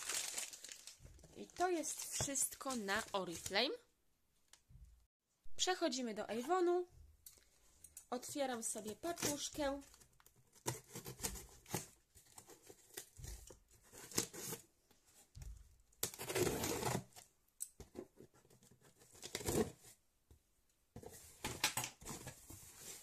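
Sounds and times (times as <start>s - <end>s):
cardboard packaging tearing: 0.0s - 1.0s, 16.0s - 17.2s.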